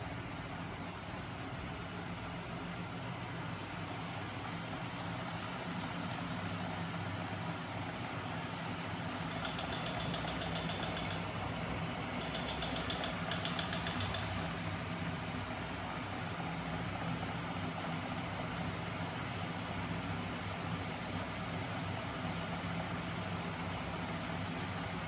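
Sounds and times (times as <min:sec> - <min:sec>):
fast even ticking: 0:09.2 - 0:14.5.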